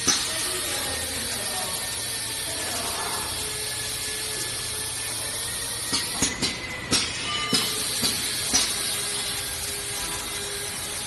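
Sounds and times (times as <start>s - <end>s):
pneumatic machine clack: 0.0s - 0.5s, 5.8s - 9.3s
air hiss: 0.0s - 11.0s
low machine hum: 0.0s - 11.0s.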